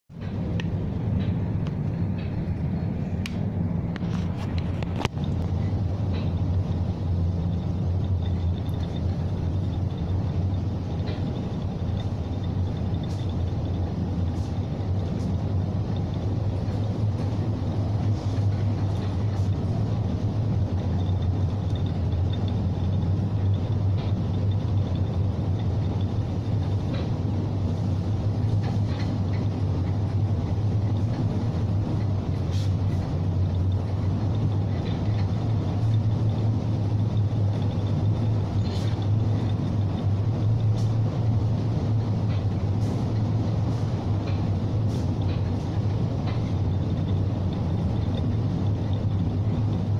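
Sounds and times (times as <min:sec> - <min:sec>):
ship engine drone: 0:00.1 - 0:49.9
wind and sea hiss: 0:01.8 - 0:49.9.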